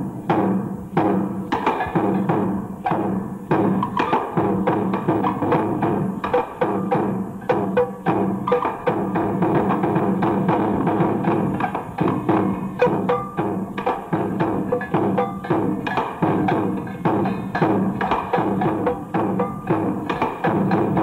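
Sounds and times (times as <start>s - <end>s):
percussion music: 0.0s - 21.0s.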